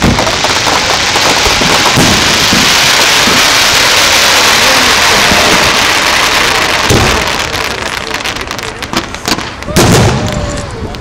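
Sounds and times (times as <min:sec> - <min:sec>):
fireworks hiss: 0:00.0 - 0:10.7
fireworks booms: 0:00.0 - 0:11.0.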